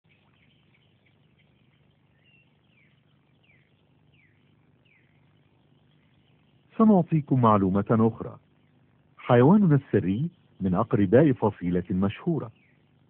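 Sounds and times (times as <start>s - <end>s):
faint high animal chirps: 0.0s - 6.7s.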